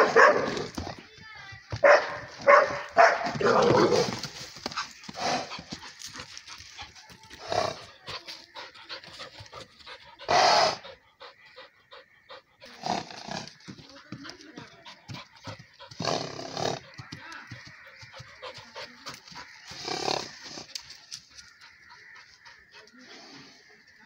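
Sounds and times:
dog panting: 0:04.2 - 0:19.8, 0:20.7 - 0:23.4.

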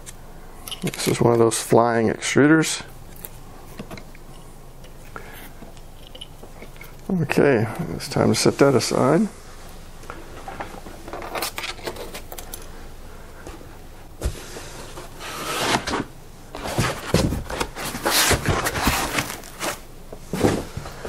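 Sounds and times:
foam scraping against cardboard: 0:14.2 - 0:19.8
foam rustling and clicking: 0:14.2 - 0:21.0.

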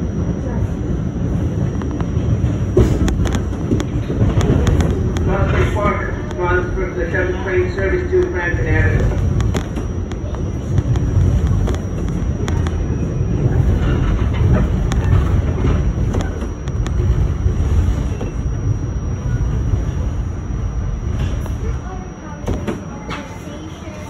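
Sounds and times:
subway train low rumble: 0:00.0 - 0:24.0
wheels clicking over rails: 0:01.6 - 0:06.4, 0:09.0 - 0:18.5.

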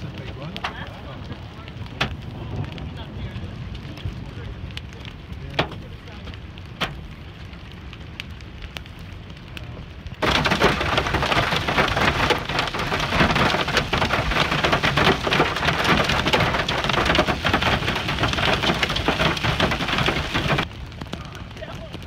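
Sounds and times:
hail splashing into water: 0:00.0 - 0:22.0
hail clattering close by: 0:10.2 - 0:22.0.

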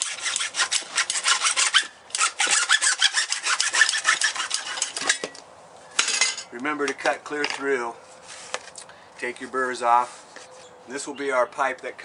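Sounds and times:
hacksaw cutting plastic pipe: 0:00.0 - 0:05.4.

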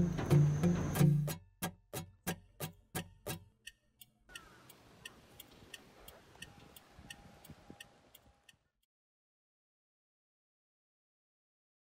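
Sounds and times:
music beats: 0:00.0 - 0:03.6
steady ticking: 0:02.0 - 0:08.7.

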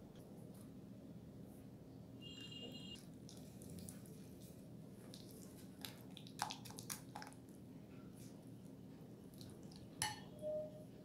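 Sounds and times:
spatula squishing mixture: 0:03.0 - 0:07.6.

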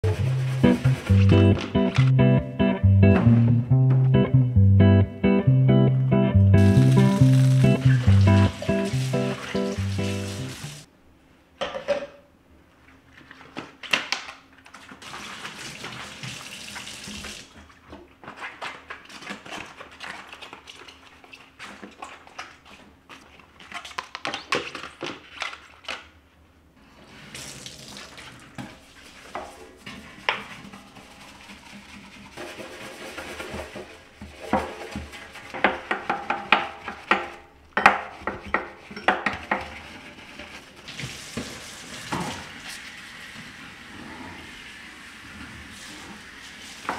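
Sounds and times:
bristle brush scrubbing sink: 0:00.0 - 0:02.1, 0:06.7 - 0:10.9, 0:28.0 - 0:46.9
tap water running and splashing: 0:06.8 - 0:10.9, 0:14.9 - 0:18.1, 0:27.2 - 0:30.7, 0:40.8 - 0:46.9
clicks and knocks of dishes: 0:11.6 - 0:12.2.

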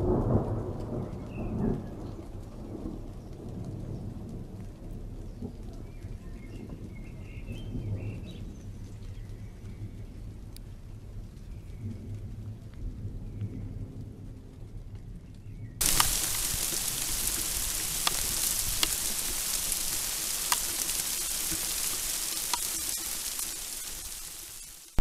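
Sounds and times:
heavy rain on grass: 0:00.0 - 0:11.6, 0:15.8 - 0:25.0
drops or hailstones ticking: 0:15.8 - 0:25.0.

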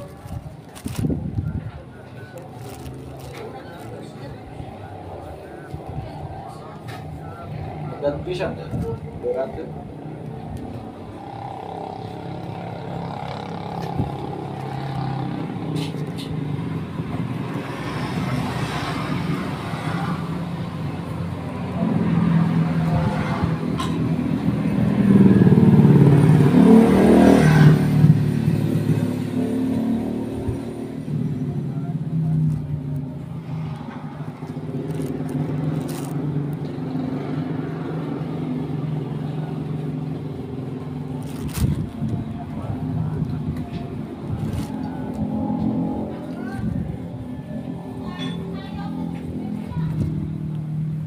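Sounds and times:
motorcycle engine running: 0:00.0 - 0:17.8.

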